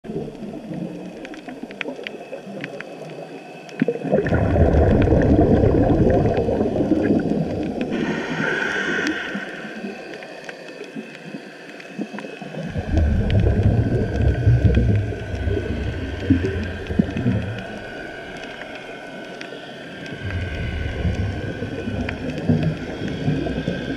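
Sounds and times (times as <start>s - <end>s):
exhaled bubbles rushing underwater: 0.0s - 23.9s
faint clicks: 0.2s - 3.9s, 8.9s - 23.9s
inhaling through a regulator: 7.8s - 10.2s.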